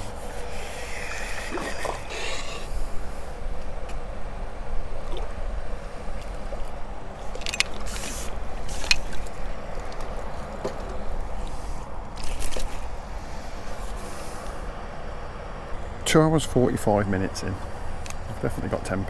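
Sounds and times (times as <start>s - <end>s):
water splashes: 4.9s - 9.8s.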